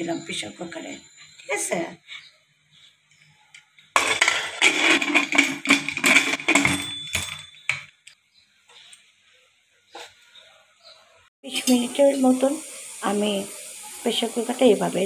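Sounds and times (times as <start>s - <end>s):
metal lid scraping and clattering: 4.0s - 7.6s.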